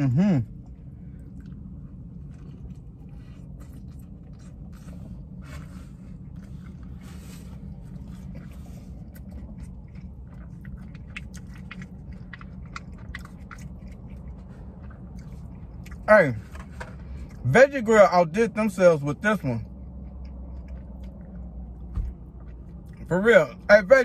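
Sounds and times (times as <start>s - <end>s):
low car cabin hum: 0.0s - 24.0s
person chewing a burger: 0.0s - 24.0s.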